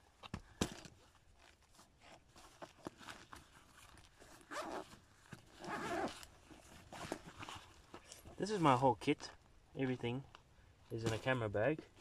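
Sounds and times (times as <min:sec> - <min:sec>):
zipper being pulled open: 0:02.0 - 0:08.3.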